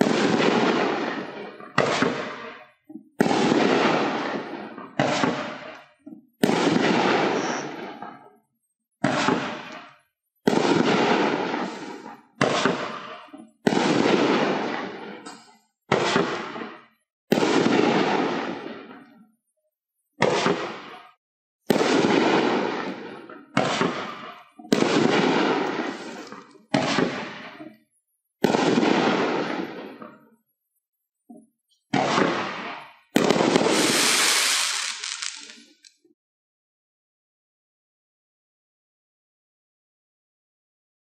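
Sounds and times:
firework shells firing: 0:00.0 - 0:08.3, 0:09.0 - 0:19.0, 0:20.2 - 0:27.8, 0:28.4 - 0:30.4, 0:31.9 - 0:35.9
firework shells bursting: 0:21.7 - 0:27.7, 0:31.9 - 0:35.9.

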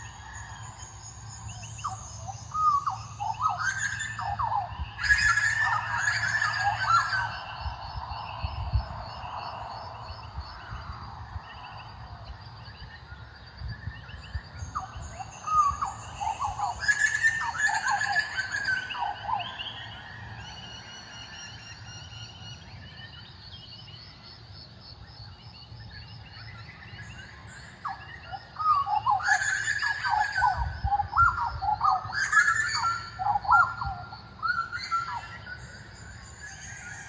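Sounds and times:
birds chirping high: 0:00.0 - 0:37.0
butcherbirds fluting calls: 0:01.5 - 0:07.7, 0:14.6 - 0:22.1, 0:27.7 - 0:37.0.

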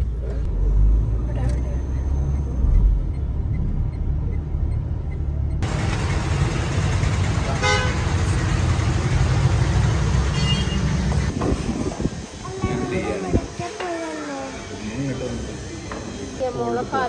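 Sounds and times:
road traffic rumble: 0:00.0 - 0:17.0
car horn toot: 0:07.5 - 0:08.2, 0:10.3 - 0:11.0.

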